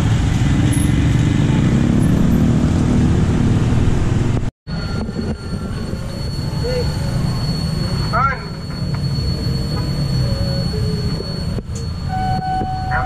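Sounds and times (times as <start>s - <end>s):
motorcycle and scooter traffic: 0.0s - 13.0s
quiet street sound: 0.0s - 13.0s
thin steady high tone: 4.7s - 13.0s.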